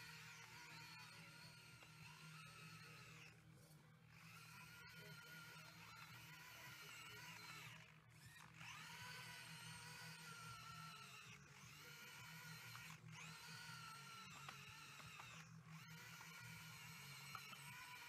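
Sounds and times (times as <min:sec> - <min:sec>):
electric motor whine: 0:00.0 - 0:18.0.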